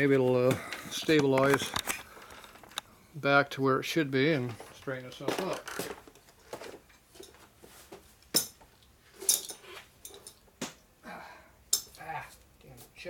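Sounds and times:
metal tools clinking: 8.4 - 10.4, 11.7 - 12.0.

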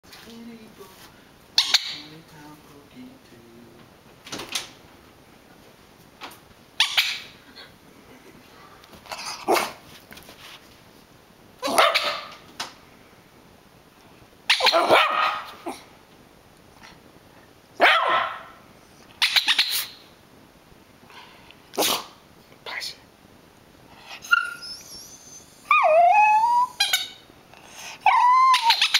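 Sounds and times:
dog barking: 11.6 - 12.4, 14.5 - 15.8, 17.8 - 18.6.

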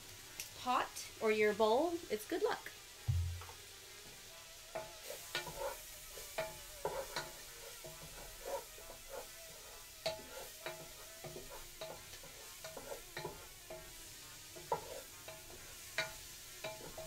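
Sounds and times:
food sizzling: 0.0 - 17.0
wooden spoon knocking metal pot: 3.1 - 3.5.

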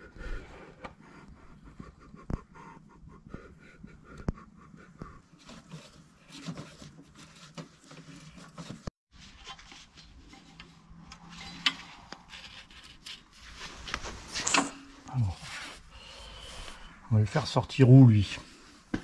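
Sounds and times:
rustling: 5.4 - 15.6.

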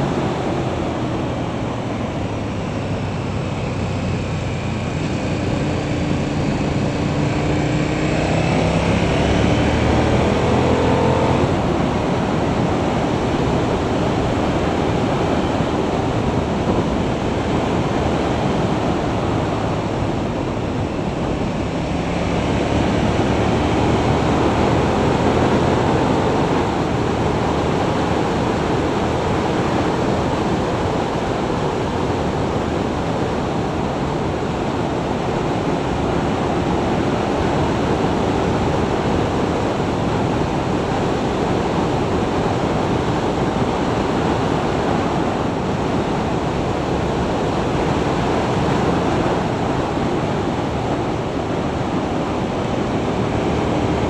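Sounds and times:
motorcycle engine accelerating: 0.0 - 30.0
wind noise on microphone: 0.0 - 54.0.

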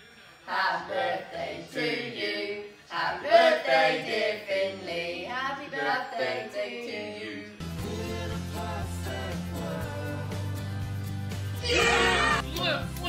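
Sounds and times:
people singing unaccompanied: 0.4 - 10.8.

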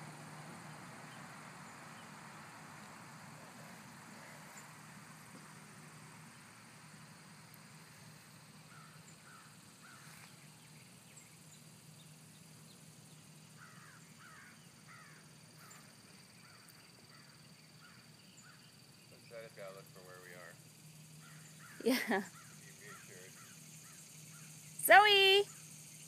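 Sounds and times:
faint steady low hum: 0.0 - 26.0
thin steady high tone: 16.8 - 26.0.

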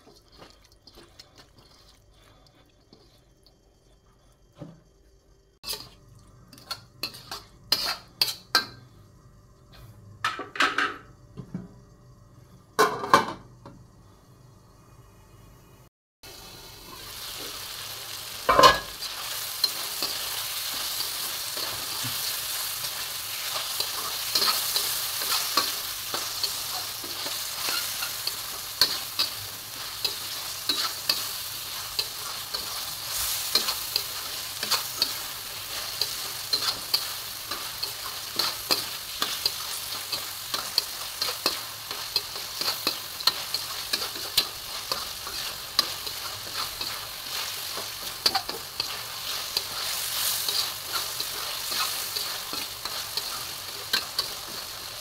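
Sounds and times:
metal spatula scraping wok: 5.6 - 8.5, 18.5 - 55.0
meat sizzling in oil: 16.2 - 55.0.

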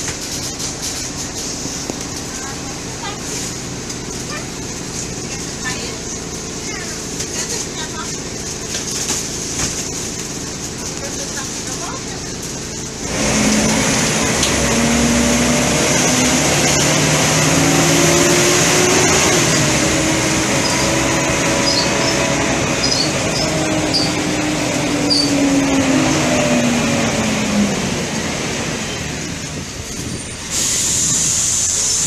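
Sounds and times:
bus engine drone: 0.0 - 32.0
road noise: 0.0 - 32.0
small squeaks: 22.8 - 24.2, 25.0 - 25.4.

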